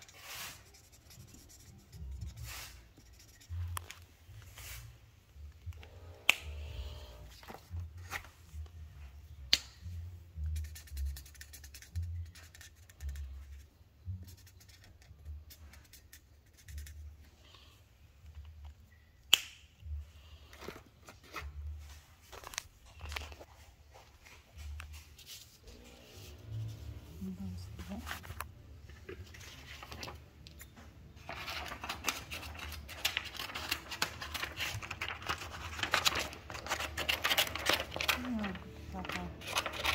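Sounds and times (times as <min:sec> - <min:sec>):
paper handling ticks: 0:29.2 - 0:39.9.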